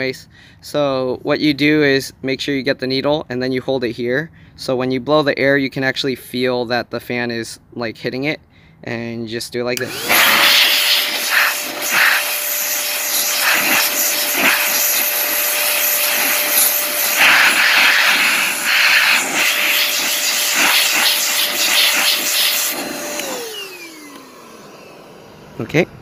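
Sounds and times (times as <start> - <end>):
rushing air: 9.8 - 24.9
electric air blower running: 9.8 - 26.0.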